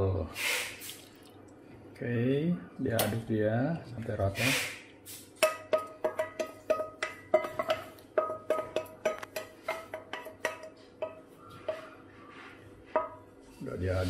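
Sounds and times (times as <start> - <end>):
wooden spoon knocking a metal bowl: 5.4 - 12.1, 12.8 - 13.4.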